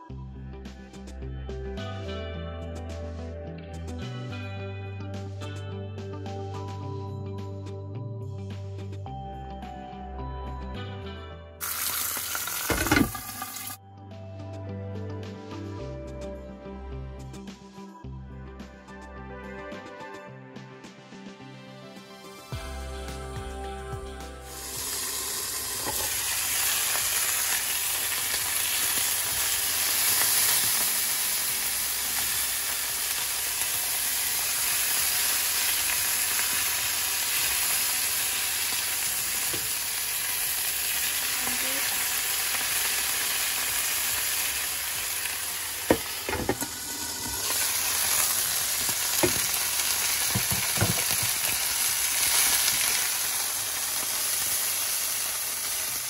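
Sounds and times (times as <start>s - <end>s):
meat sizzling in frying pan: 11.6s - 13.8s, 24.5s - 56.0s.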